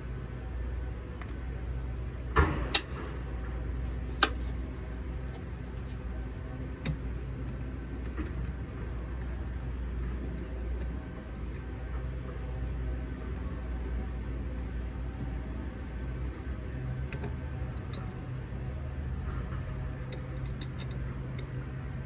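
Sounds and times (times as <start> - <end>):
steady low rumble: 0.0 - 22.0
sharp clicks and knocks: 2.3 - 3.6, 19.5 - 22.0.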